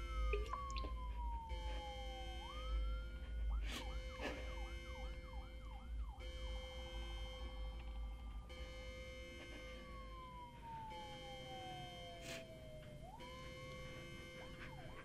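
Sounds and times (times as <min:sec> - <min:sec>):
emergency vehicle siren: 0:00.0 - 0:15.0
steady low hum: 0:00.0 - 0:15.0.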